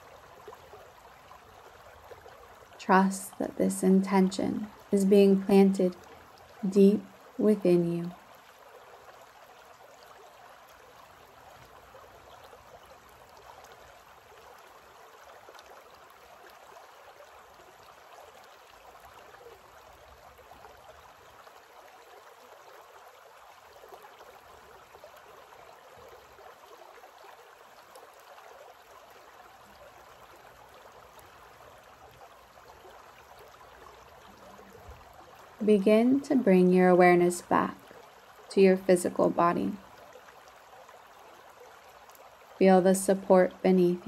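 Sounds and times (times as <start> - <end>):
creek running over rocks: 0.0 - 44.0.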